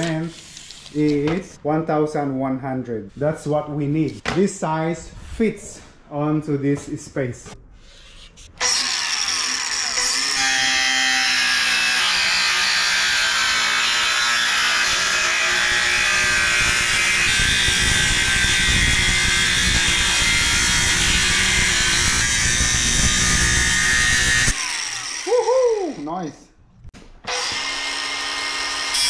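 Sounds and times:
angle grinder cutting metal: 8.6 - 26.2, 27.3 - 29.0.

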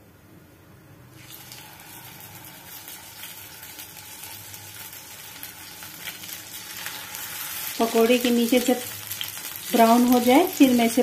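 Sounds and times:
pakoras sizzling in hot oil: 1.1 - 11.0.

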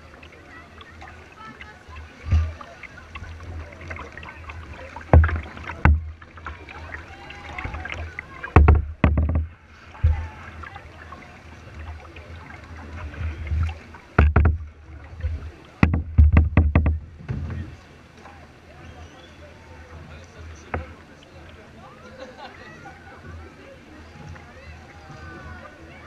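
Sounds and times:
faint voices: 0.0 - 26.0
water splashing around kayak hull: 0.0 - 26.0
sudden thumps on kayak: 5.0 - 6.6, 7.6 - 10.4, 13.5 - 17.7.

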